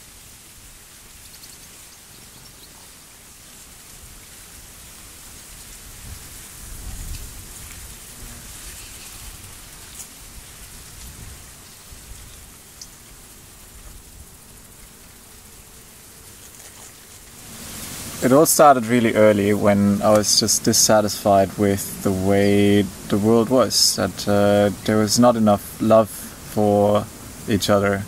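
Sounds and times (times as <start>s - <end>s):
wind on microphone: 4.0s - 12.6s.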